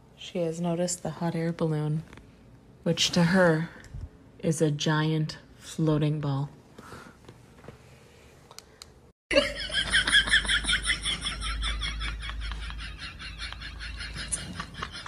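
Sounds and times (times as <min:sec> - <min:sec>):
high-pitched giggling laughter: 0:09.3 - 0:15.0.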